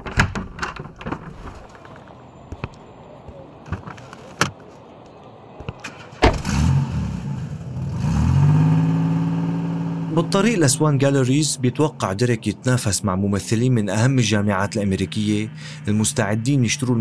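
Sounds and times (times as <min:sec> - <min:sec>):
car engine starting and running: 0:05.8 - 0:17.0
loud thump: 0:06.2 - 0:06.5.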